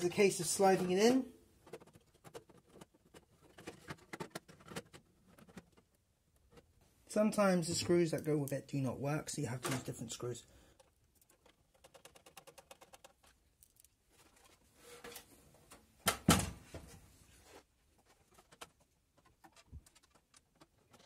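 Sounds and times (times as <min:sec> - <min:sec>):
screws and screwdriver rattling on metal: 0:10.7 - 0:13.9.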